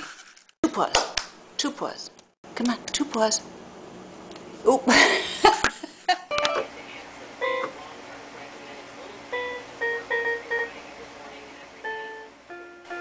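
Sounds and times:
electronic keyboard single notes: 6.3s - 6.7s, 7.4s - 7.8s, 9.3s - 10.8s, 11.8s - 13.0s.

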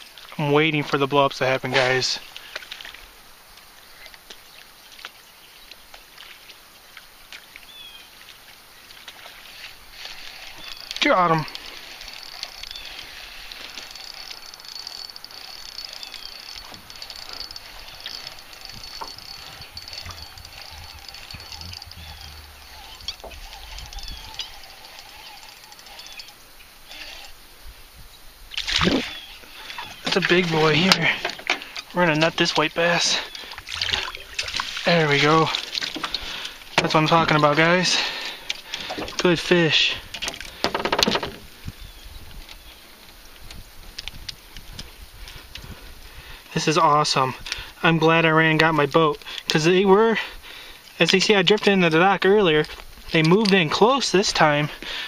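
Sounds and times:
small birds chirping: 2.0s - 27.4s, 28.0s - 39.4s, 41.6s - 43.5s
water lapping against boat hull: 3.9s - 27.3s, 28.5s - 42.6s
wind rumble on microphone: 16.7s - 24.7s, 41.0s - 46.4s.

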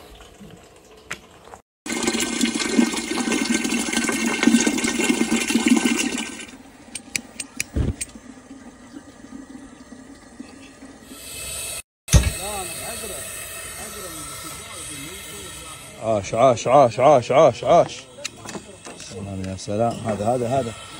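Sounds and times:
water pouring into metal pot: 0.0s - 6.6s.

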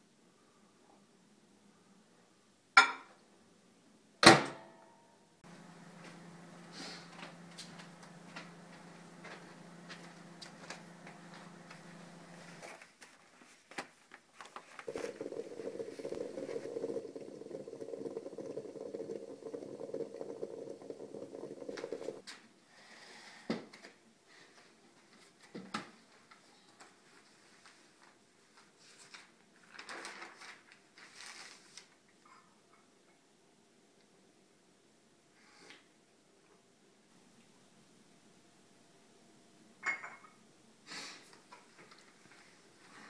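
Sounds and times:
low hum: 5.4s - 12.6s
moka pot hissing: 5.4s - 12.7s, 14.8s - 22.2s.

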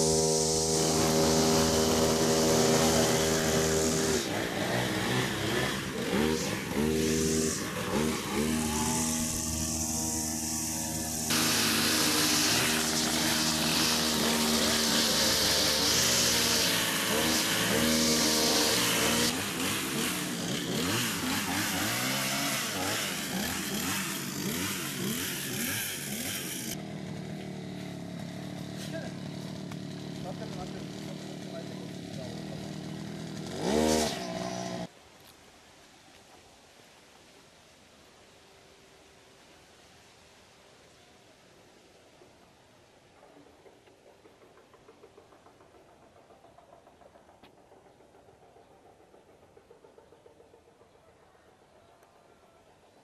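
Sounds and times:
small petrol engine revving: 0.0s - 35.0s
high hiss: 6.9s - 18.8s.

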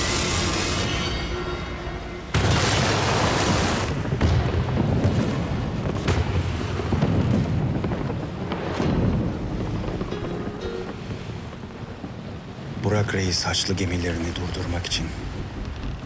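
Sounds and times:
dramatic background music: 0.0s - 8.0s, 8.7s - 12.6s
heavy gunpowder explosion: 2.3s - 10.2s.

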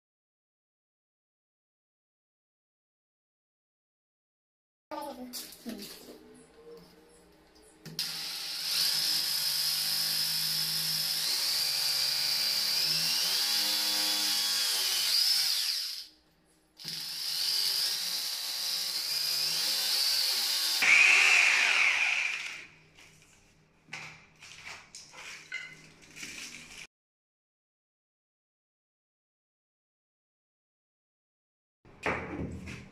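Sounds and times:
electric drill boring into tile: 8.0s - 16.1s, 16.8s - 22.7s.

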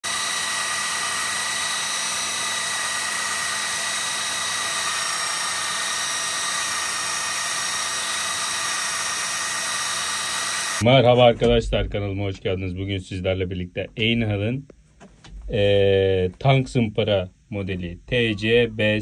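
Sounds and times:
belt sander grinding knife blade: 0.0s - 10.8s.

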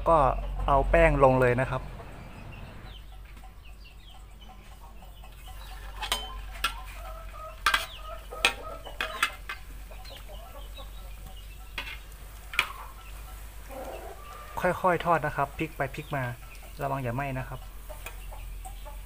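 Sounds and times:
chickens clucking: 0.0s - 19.0s
metal spatula scraping wok: 5.4s - 10.2s, 11.7s - 15.2s.

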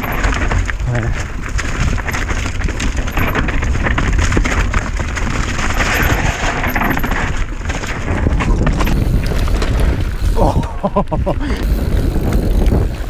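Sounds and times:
bike tyres on loose ground: 0.0s - 13.0s
wind rumbling on microphone: 0.0s - 13.0s
chain clicks and knocks: 1.8s - 10.3s.

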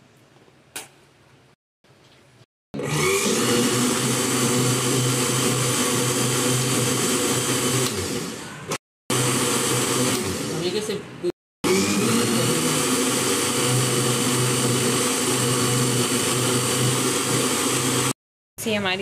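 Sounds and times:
electric blender running: 2.8s - 11.0s, 11.6s - 18.2s.

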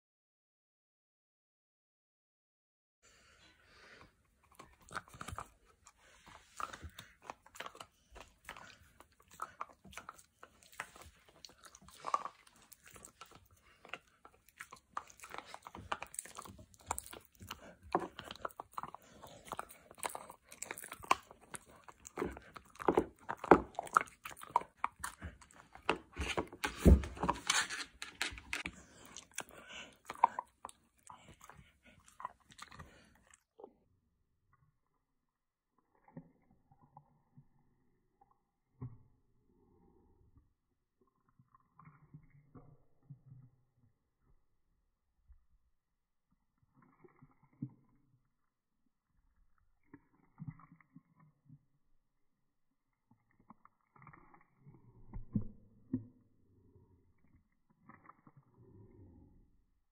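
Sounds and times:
dog crunching cookie: 4.3s - 33.4s, 53.1s - 54.8s.

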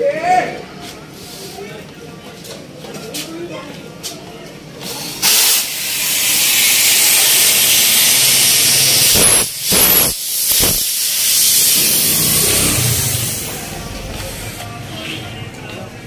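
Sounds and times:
gas hissing from a pipe: 4.8s - 14.6s.

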